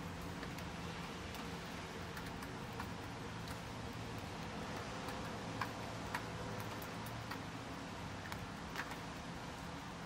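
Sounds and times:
background hiss: 0.0s - 10.0s
soft ticks: 1.3s - 9.2s.

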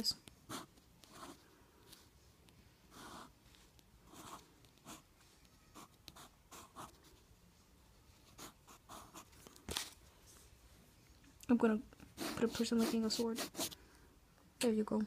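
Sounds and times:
pencil scratching on paper: 0.4s - 2.1s, 2.9s - 5.1s, 5.7s - 7.2s, 8.2s - 9.4s, 12.0s - 13.8s.

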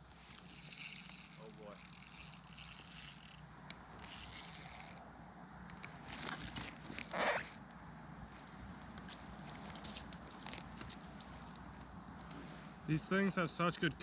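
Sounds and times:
fishing reel gears whirring: 0.3s - 5.0s, 6.0s - 7.6s.

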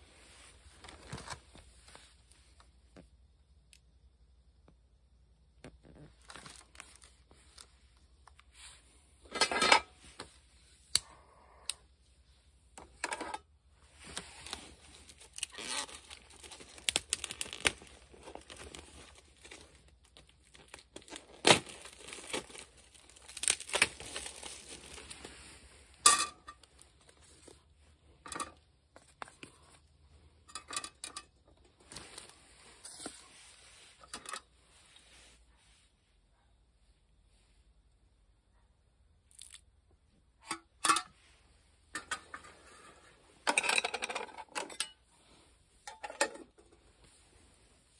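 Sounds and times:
plastic packaging crinkling: 6.0s - 7.7s, 14.0s - 25.6s.

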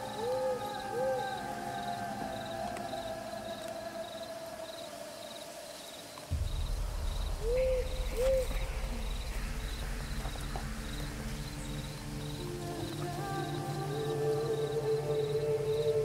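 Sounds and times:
crickets chirping: 0.0s - 16.0s
owl hooting: 0.0s - 16.0s
low steady rumble: 6.3s - 14.5s.

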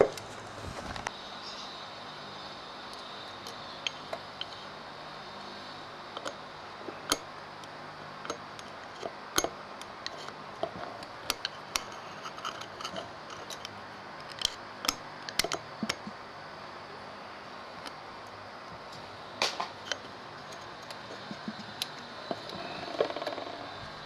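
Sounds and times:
steady hiss: 0.0s - 24.0s
tools tapping metal: 14.3s - 16.1s, 19.8s - 23.5s.

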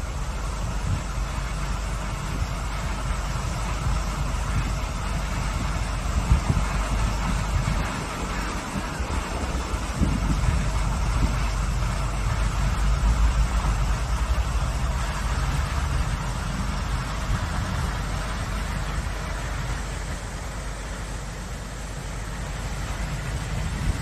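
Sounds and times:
wind rumble on microphone: 0.0s - 20.2s, 22.2s - 24.0s.

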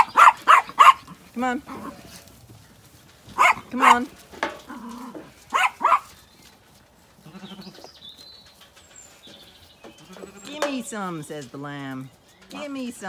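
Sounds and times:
sheep and lambs bleating: 7.1s - 8.0s, 9.8s - 10.9s.

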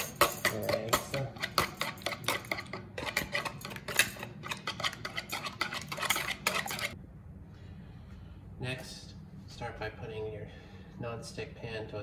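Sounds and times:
whisk clicking against bowl: 0.0s - 7.0s.

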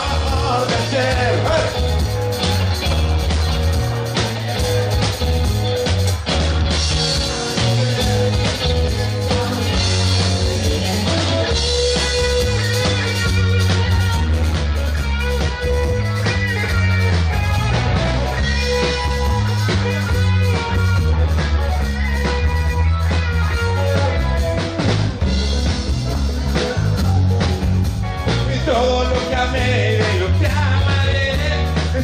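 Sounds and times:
bass guitar: 0.0s - 32.0s
drum kit: 0.0s - 32.0s
electric guitar: 0.0s - 32.0s.

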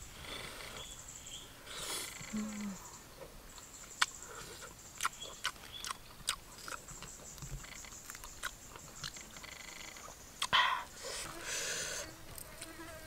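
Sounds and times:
high insect drone: 0.0s - 3.1s, 7.3s - 13.0s
person chewing food: 4.0s - 9.3s.

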